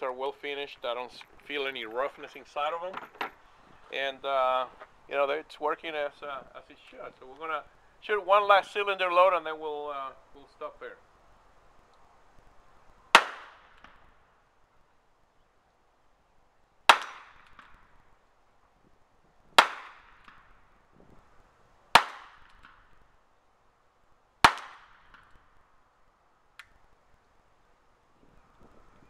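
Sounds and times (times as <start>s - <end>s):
revolver gunshots with echo: 13.2s - 13.8s, 16.9s - 17.7s.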